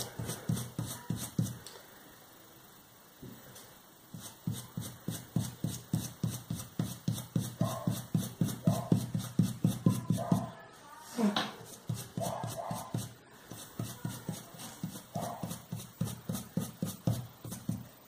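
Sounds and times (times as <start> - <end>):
paintbrush tapping on stencil: 4.2 - 10.5, 11.8 - 17.9.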